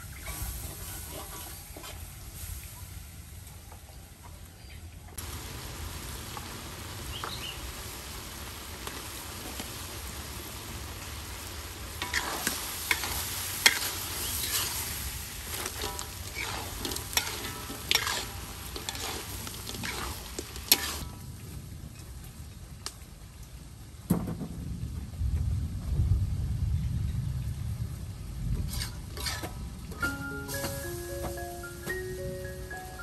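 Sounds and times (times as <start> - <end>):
spatula scraping a wok: 0.1 - 2.5, 11.9 - 21.1, 28.6 - 29.6
meat sizzling in a wok: 5.2 - 21.1
spatula clanking on wok: 15.7 - 21.0.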